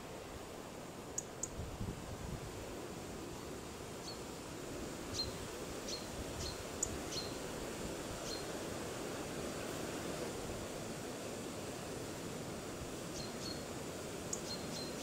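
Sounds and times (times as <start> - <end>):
outdoor background hiss: 0.0 - 15.0
bird chirping: 14.3 - 15.0.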